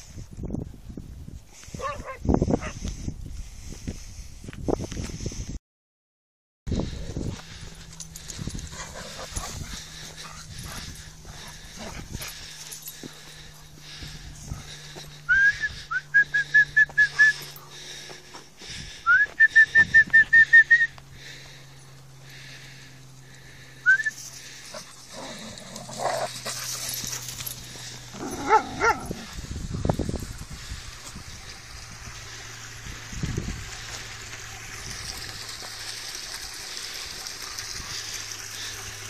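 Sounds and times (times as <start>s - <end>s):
dog low rough cry: 28.1s - 29.4s
dog whining and yipping: 28.2s - 29.2s.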